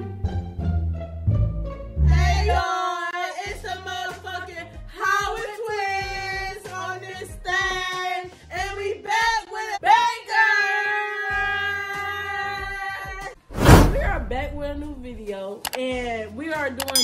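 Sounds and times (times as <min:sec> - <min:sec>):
low bass line: 0:13.9 - 0:15.2.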